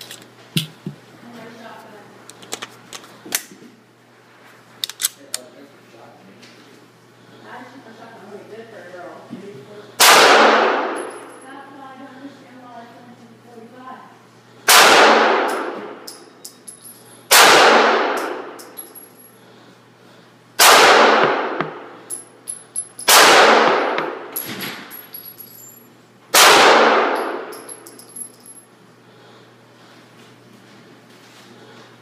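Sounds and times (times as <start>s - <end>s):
pistol shots indoors: 10.0s - 11.2s, 14.6s - 16.3s, 17.3s - 18.7s, 20.6s - 21.9s, 23.0s - 24.9s, 26.3s - 27.9s.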